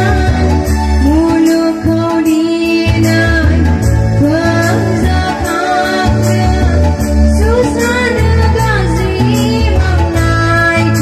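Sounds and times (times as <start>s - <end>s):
amplified backing music: 0.0s - 11.0s
woman singing into a microphone: 0.0s - 11.0s.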